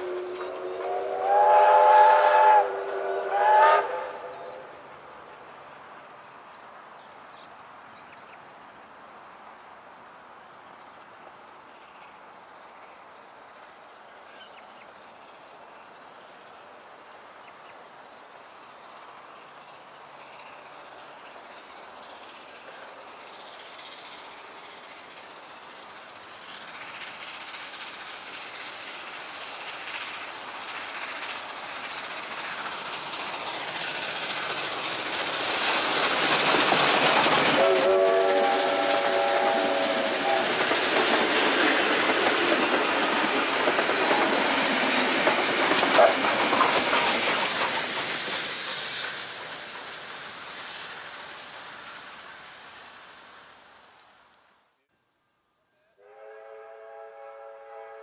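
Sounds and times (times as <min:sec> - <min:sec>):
steam locomotive whistle: 0:00.0 - 0:04.7, 0:37.5 - 0:40.8, 0:56.0 - 0:58.0
steam train passing: 0:00.0 - 0:54.9, 0:56.0 - 0:58.0
carriages clattering over rail joints: 0:24.0 - 0:50.7.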